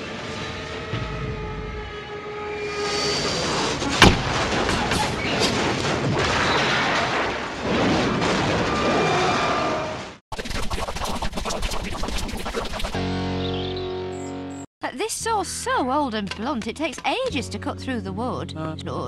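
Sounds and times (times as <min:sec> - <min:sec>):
sharp bang: 0:03.9 - 0:06.7.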